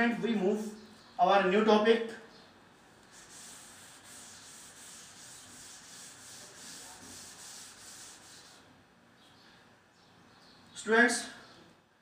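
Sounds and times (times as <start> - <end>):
duster scrubbing blackboard: 3.1 - 8.7.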